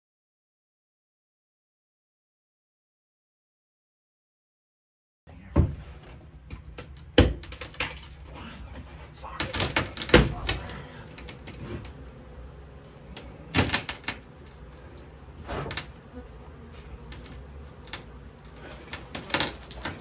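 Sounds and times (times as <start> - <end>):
honeybees buzzing: 7.0 - 20.0.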